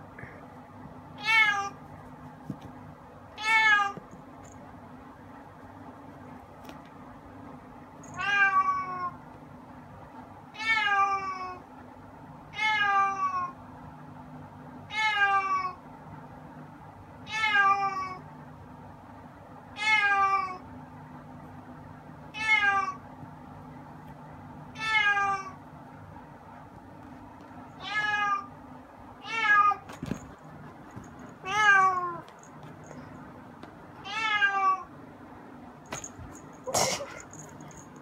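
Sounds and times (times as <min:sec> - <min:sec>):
cat meowing: 0:27.8 - 0:28.5, 0:34.0 - 0:34.9.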